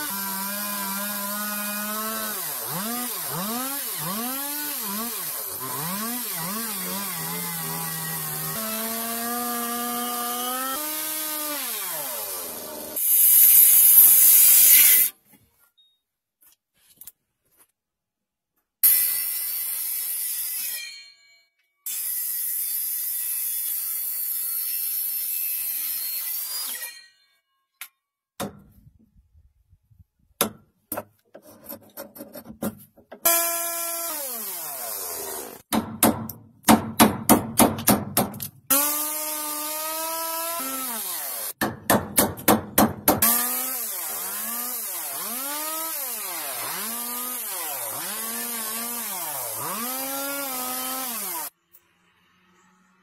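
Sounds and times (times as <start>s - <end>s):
electric woodworking tool motor: 0.0s - 15.1s, 33.3s - 35.6s, 38.7s - 41.6s, 43.3s - 51.5s.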